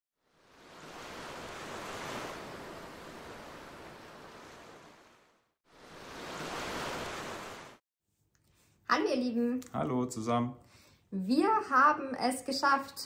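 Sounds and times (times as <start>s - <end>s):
sea waves washing in: 0.2s - 7.8s.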